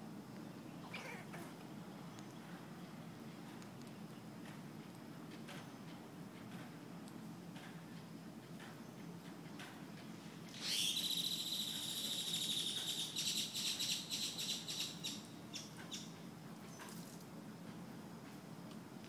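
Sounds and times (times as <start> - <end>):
high-pitched buzzing animal call: 10.6 - 12.8.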